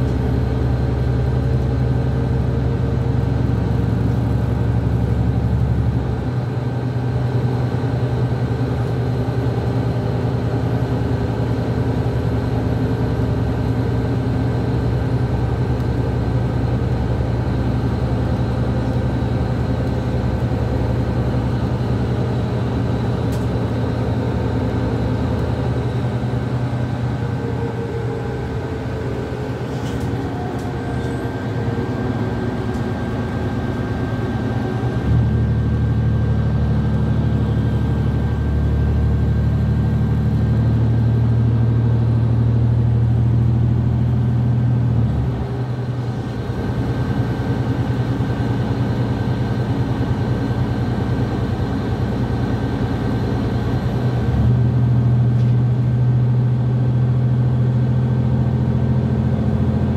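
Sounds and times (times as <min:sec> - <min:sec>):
bus engine drone: 0:00.0 - 0:59.9
road noise: 0:00.0 - 0:59.9.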